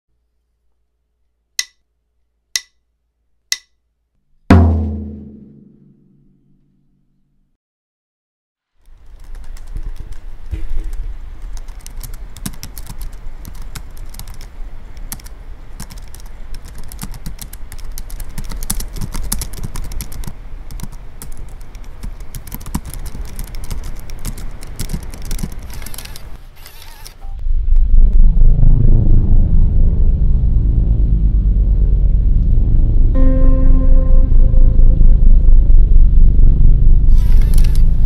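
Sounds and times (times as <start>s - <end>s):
laptop keyboard typing: 9.0s - 27.2s
steady low hum: 9.0s - 38.0s.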